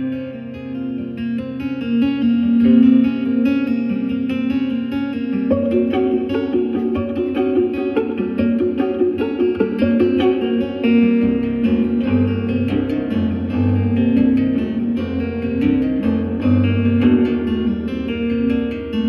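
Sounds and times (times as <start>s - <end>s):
fingerstyle acoustic guitar: 0.0s - 19.0s
low bass guitar notes: 2.4s - 19.0s.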